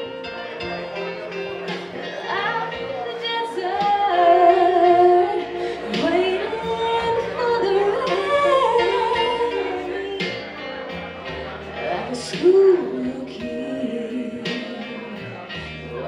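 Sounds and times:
karaoke backing music: 0.0 - 16.0
woman singing into microphone: 2.2 - 10.8, 11.8 - 15.8.

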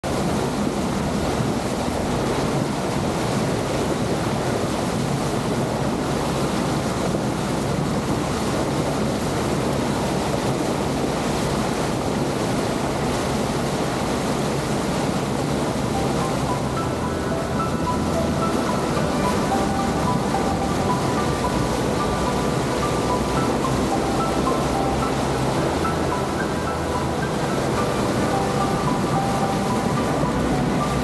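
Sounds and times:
boat engine low hum: 0.0 - 31.0
water rushing past hull: 0.0 - 31.0.

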